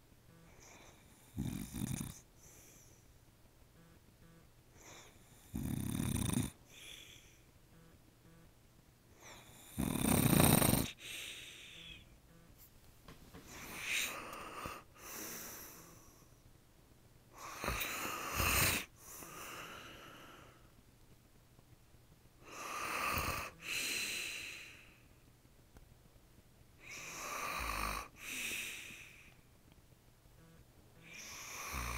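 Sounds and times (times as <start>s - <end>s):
quiet breaths: 0.0s - 25.5s, 26.1s - 31.9s
man snoring: 0.4s - 2.3s, 4.8s - 7.4s, 9.2s - 12.0s, 13.6s - 16.2s, 17.4s - 20.5s, 22.4s - 24.8s, 26.8s - 29.2s, 31.0s - 31.9s.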